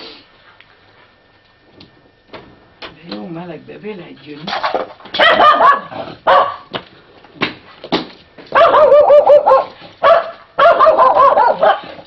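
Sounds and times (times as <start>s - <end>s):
dog barking: 5.2s - 6.7s, 8.5s - 12.0s.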